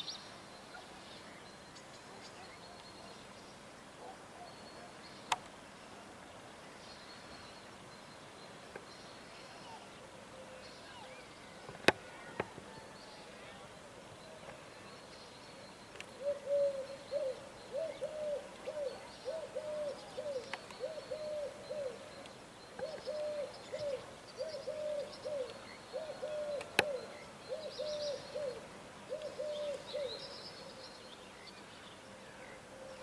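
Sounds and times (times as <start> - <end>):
dove cooing: 16.2 - 22.2, 22.8 - 30.2.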